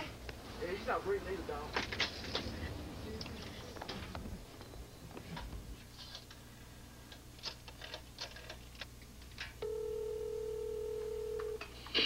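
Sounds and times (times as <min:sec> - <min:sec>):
telephone ringing tone: 0:09.6 - 0:11.7.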